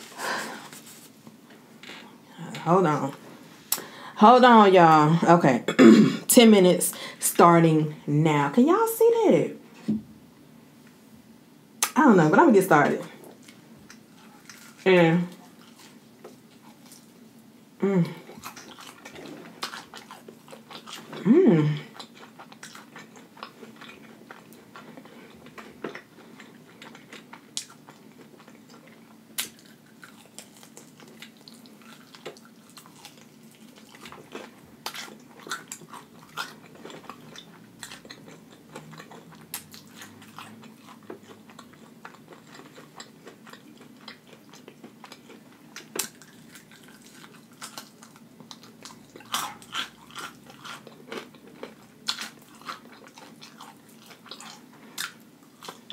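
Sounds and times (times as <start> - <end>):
chewing crunchy fried chicken: 13.1 - 55.9.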